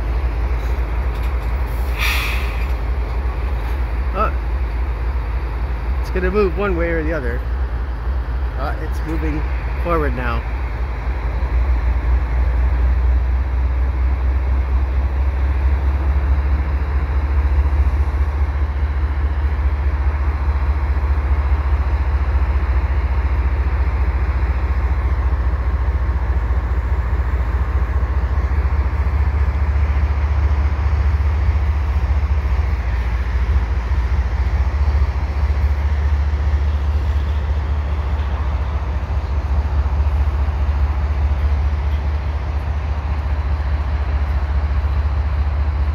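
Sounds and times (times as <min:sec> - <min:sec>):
diesel locomotive engine rumbling: 0:00.0 - 0:45.9
train cars rolling: 0:00.0 - 0:45.9.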